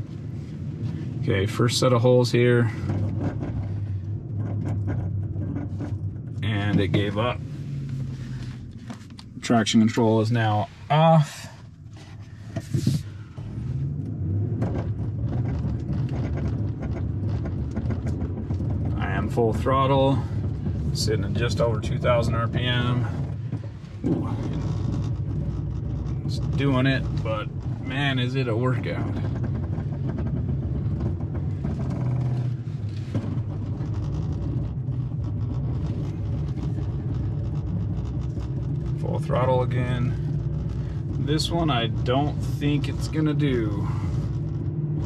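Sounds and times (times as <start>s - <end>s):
engine at full throttle: 0.0s - 45.0s
knocks and clicks: 14.0s - 19.4s, 28.8s - 43.4s.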